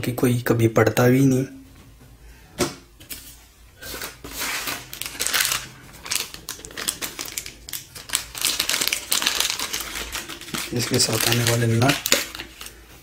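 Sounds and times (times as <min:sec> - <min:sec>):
paper sheet rustling: 0:03.1 - 0:13.0
plastic bag crinkling: 0:03.8 - 0:13.0.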